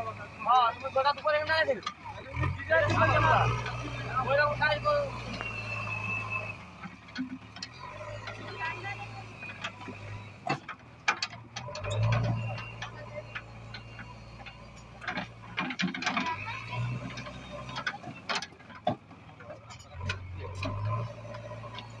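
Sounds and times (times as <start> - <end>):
diesel engine humming: 0.0 - 22.0.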